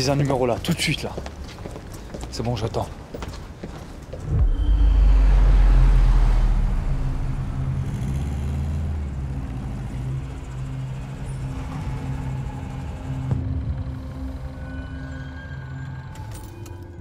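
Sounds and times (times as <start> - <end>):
car engine running: 4.3 - 13.8.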